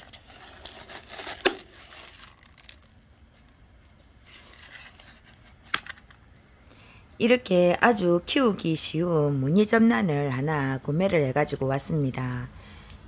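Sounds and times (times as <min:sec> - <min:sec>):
thin plastic crinkling: 0:00.0 - 0:03.6, 0:04.2 - 0:06.2.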